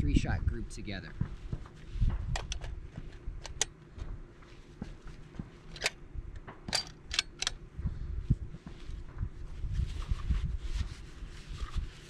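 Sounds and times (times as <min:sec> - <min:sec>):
wind rumble on microphone: 0:00.0 - 0:04.2, 0:07.7 - 0:12.0
metallic clicks of rifle handling: 0:03.4 - 0:03.8, 0:05.7 - 0:07.6.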